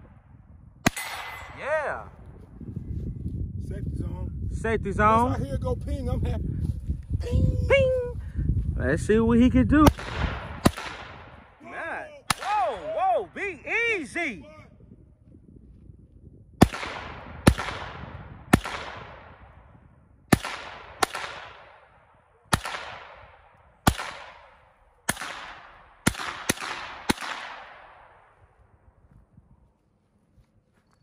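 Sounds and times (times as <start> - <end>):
pistol shots echoing: 0.8 - 1.6, 9.9 - 11.6, 12.2 - 12.6, 16.6 - 19.5, 20.3 - 28.3.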